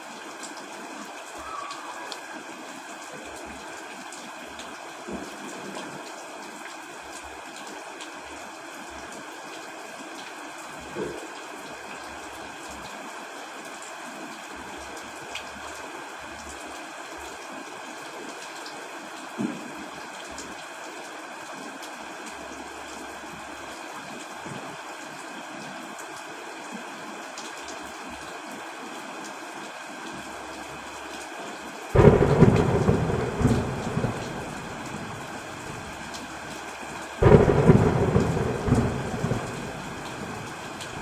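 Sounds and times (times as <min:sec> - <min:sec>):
heavy rain: 0:00.0 - 0:41.0
thunderclap rumbling: 0:32.0 - 0:36.0, 0:37.2 - 0:41.0.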